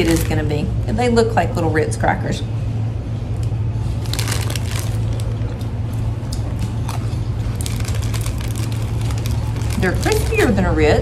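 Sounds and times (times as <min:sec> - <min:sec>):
steady low hum: 0:00.0 - 0:11.0
crackers being chewed: 0:03.4 - 0:10.6.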